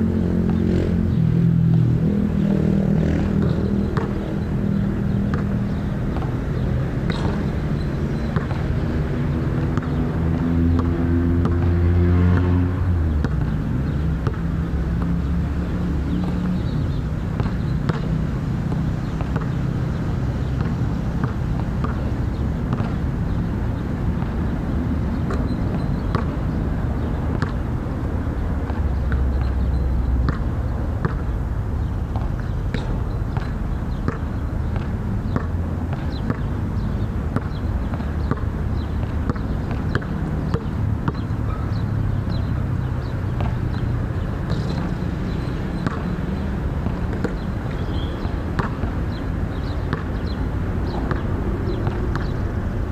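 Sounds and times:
low engine rumble: 49.6 - 52.9.

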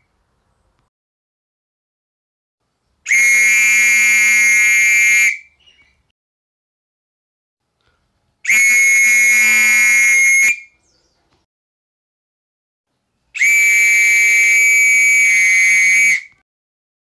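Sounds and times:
whistle blasts: 3.1 - 5.6, 8.4 - 10.8, 13.4 - 16.4.

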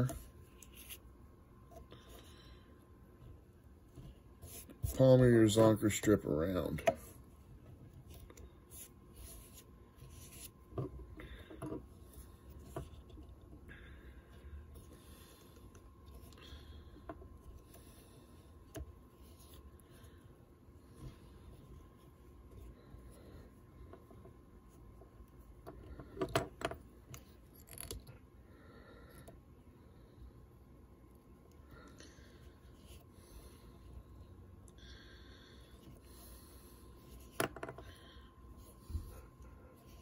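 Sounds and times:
faint rubbing and handling: 0.0 - 13.7, 17.0 - 26.2, 35.6 - 40.0.

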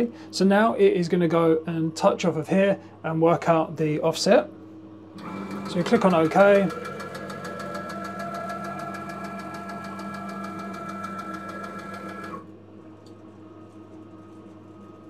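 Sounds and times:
stepper motors whining: 5.2 - 12.4
slow motor hum: 5.2 - 12.6.

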